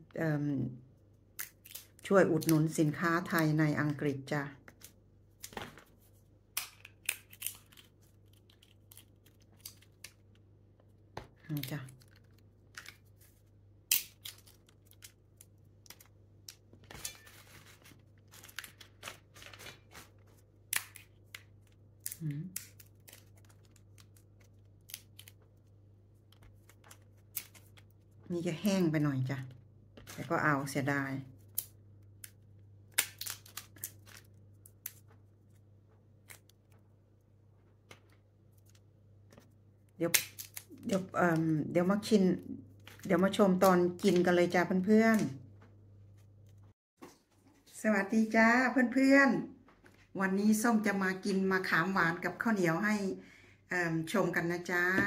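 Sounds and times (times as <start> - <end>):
dry pod shells cracking: 1.4 - 2.5, 6.5 - 10.5, 11.4 - 13.2, 13.8 - 17.3, 20.6 - 25.4, 26.3 - 28.0, 31.4 - 35.2, 39.9 - 41.1
rustling: 16.8 - 20.5.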